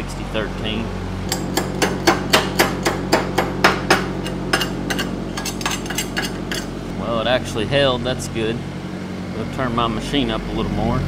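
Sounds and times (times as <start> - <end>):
welding machine engine running: 0.9 - 10.7
hammer hitting metal: 1.3 - 6.7.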